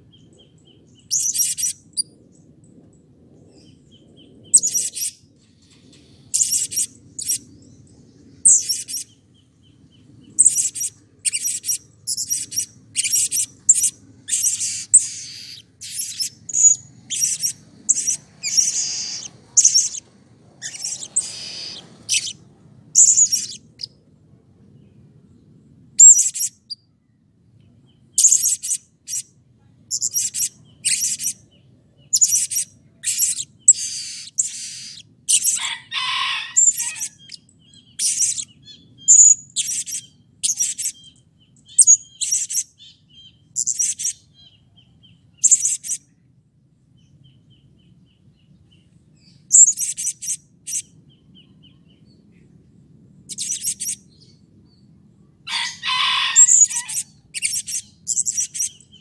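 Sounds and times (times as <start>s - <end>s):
parrot shrill chirping calls: 10.4s - 20.0s, 20.6s - 22.4s, 23.0s - 23.9s, 32.2s - 41.0s, 55.5s - 58.8s.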